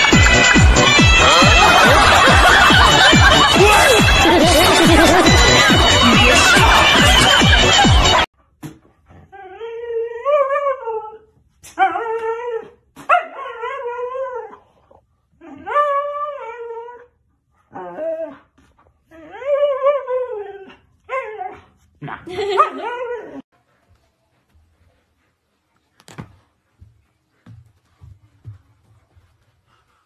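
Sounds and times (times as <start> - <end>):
dog howl-like whines: 17.7 - 18.5.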